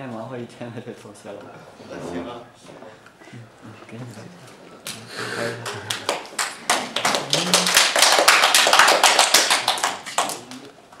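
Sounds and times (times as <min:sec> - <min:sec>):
audience clapping: 0:05.6 - 0:10.7.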